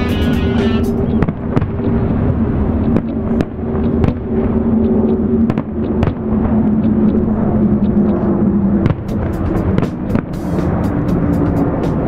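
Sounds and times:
steady low hum: 0.0 - 12.0
fireworks bangs and pops: 8.8 - 10.8.

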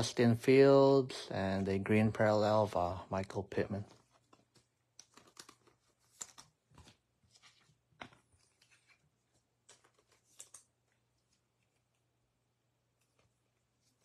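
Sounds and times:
trading cards clicking and rustling: 3.3 - 12.0.

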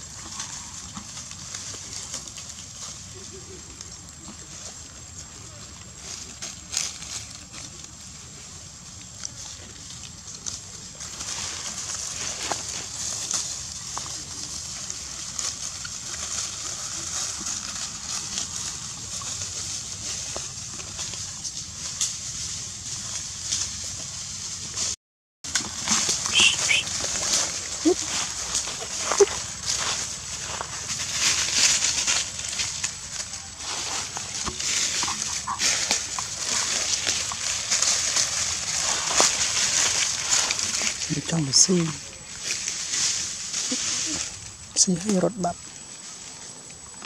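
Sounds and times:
dry leaves rustling: 0.0 - 47.0
monkey squeaks: 26.3 - 26.9.

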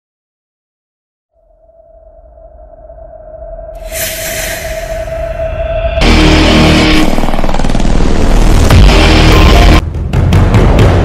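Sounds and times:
rumbling whoosh: 2.0 - 8.9
music: 3.7 - 11.0.

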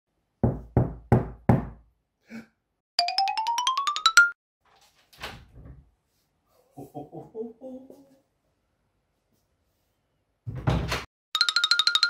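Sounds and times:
knocks on wooden door: 0.4 - 1.8.

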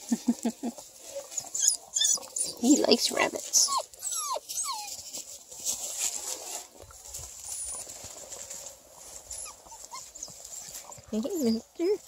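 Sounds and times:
puppies scuffling in dry leaves: 0.8 - 12.0
puppy whining: 1.3 - 2.8, 3.4 - 5.1, 9.3 - 12.0.

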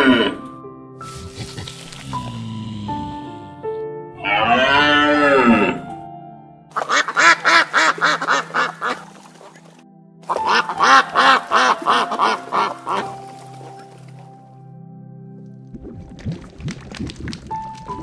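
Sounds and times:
background music: 0.0 - 18.0
animal calling: 4.2 - 5.8, 6.8 - 9.6.

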